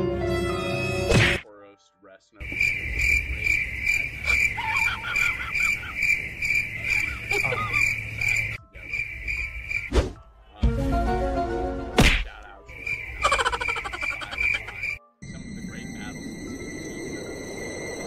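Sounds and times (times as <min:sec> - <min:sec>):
cricket chirping: 0:02.4 - 0:09.9, 0:12.4 - 0:18.0.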